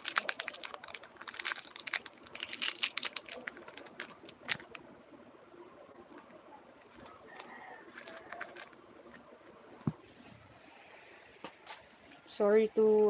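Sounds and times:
handling clicks and crinkling: 0.0 - 4.9, 6.1 - 10.0.

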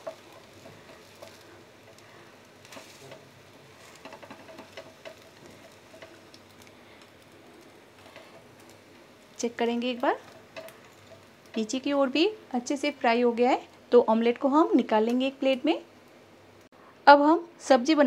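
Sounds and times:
omelette crackling in oil: 0.0 - 13.4
plastic spatula tapping and scraping: 3.8 - 6.5.

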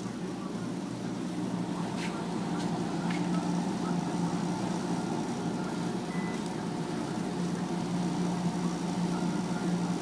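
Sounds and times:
washers and dryers humming: 0.0 - 10.0
card reader beep: 6.1 - 6.5.

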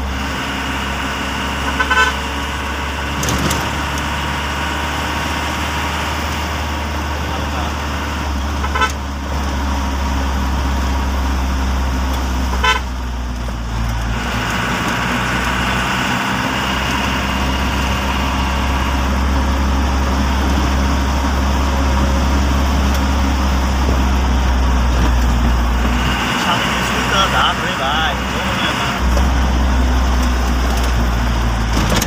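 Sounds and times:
vehicle engine and road noise: 0.0 - 32.0
short horn toot: 1.7 - 2.2, 8.6 - 9.0, 12.5 - 13.0.

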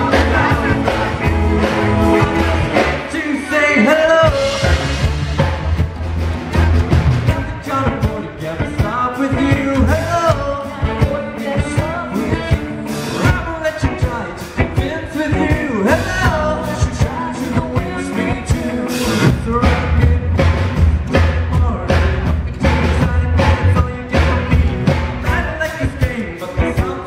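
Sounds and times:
man singing: 0.0 - 5.4, 6.5 - 27.0
rockabilly band playing: 0.0 - 27.0.

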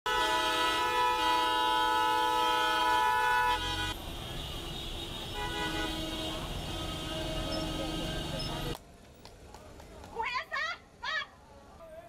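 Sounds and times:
vehicle horns blaring: 0.0 - 8.8
street noise: 0.1 - 12.0.

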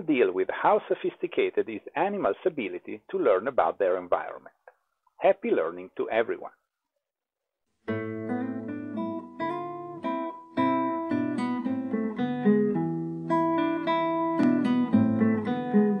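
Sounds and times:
guitar chords plucked and strummed: 7.8 - 16.0.

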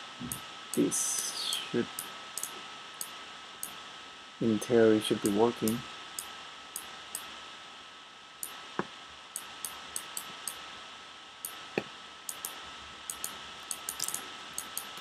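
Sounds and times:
faint steady hiss: 0.0 - 15.0
mouse and keyboard clicks: 11.5 - 15.0.

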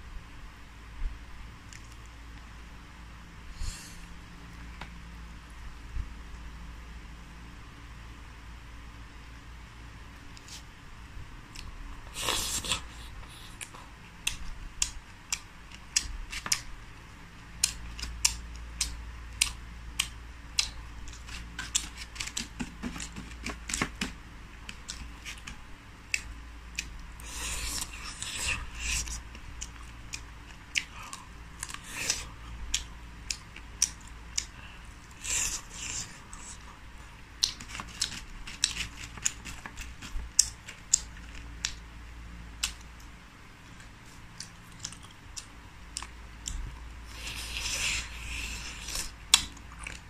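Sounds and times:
crunchy chewing: 11.5 - 16.8, 17.4 - 41.8, 42.6 - 50.0.

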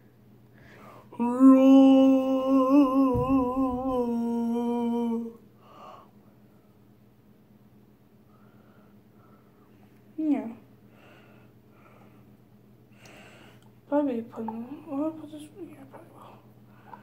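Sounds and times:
boy humming: 1.1 - 5.4.

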